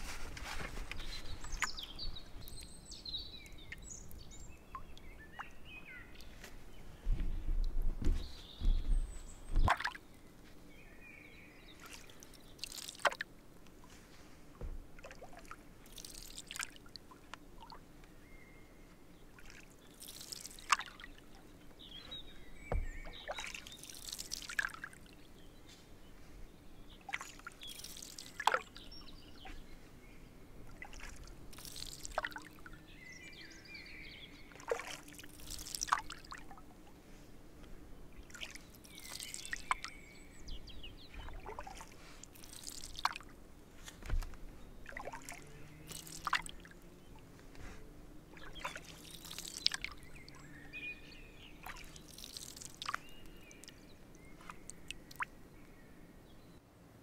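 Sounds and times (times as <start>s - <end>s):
paddle splashing in water: 0.0s - 6.4s, 8.2s - 10.1s, 11.7s - 13.3s, 13.9s - 17.8s, 19.3s - 25.2s, 27.0s - 29.8s, 30.6s - 37.3s, 38.2s - 55.3s
water dripping off paddle: 9.6s - 10.0s, 11.8s - 13.3s, 15.0s - 18.1s, 19.3s - 21.9s, 22.7s - 25.2s, 27.0s - 29.5s, 30.6s - 32.8s, 34.4s - 36.7s, 38.2s - 39.9s, 41.1s - 43.3s, 44.0s - 47.3s, 48.3s - 55.3s.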